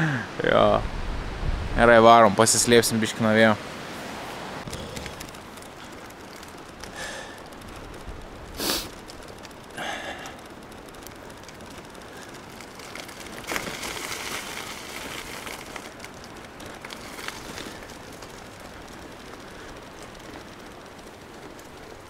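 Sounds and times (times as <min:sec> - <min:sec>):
bicycle tyres hissing on wet road: 0:03.6 - 0:22.0
person breathing hard: 0:06.9 - 0:07.5, 0:08.6 - 0:08.9, 0:09.7 - 0:10.4.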